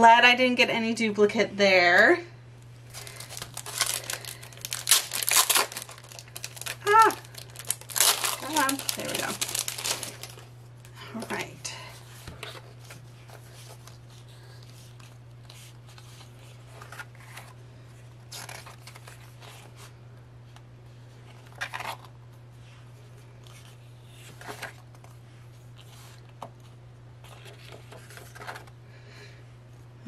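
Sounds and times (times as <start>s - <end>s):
steady low hum: 0.0s - 30.0s
paper rustling: 2.9s - 10.5s, 23.4s - 28.7s.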